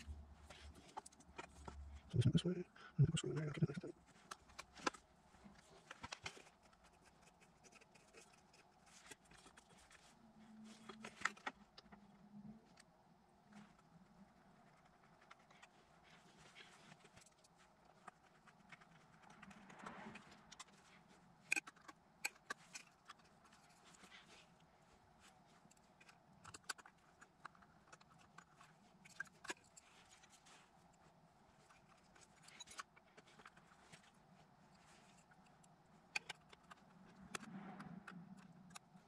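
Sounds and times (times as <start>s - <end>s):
soft rustle: 3.4s - 39.0s.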